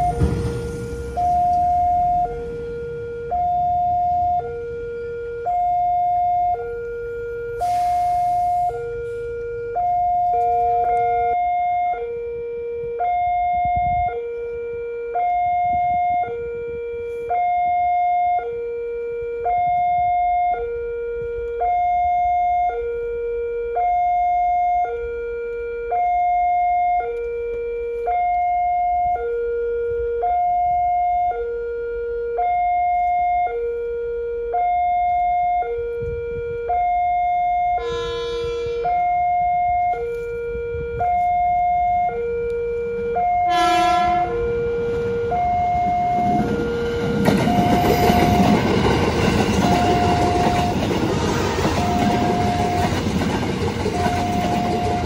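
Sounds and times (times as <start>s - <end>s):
two-tone level crossing siren: 0.0s - 55.0s.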